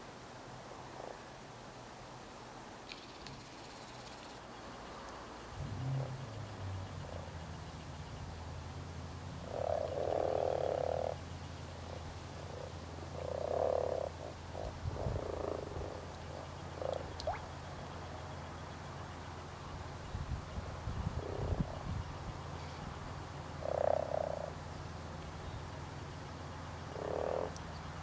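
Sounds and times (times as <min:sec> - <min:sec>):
frogs croaking: 0:09.4 - 0:20.1, 0:21.0 - 0:28.0.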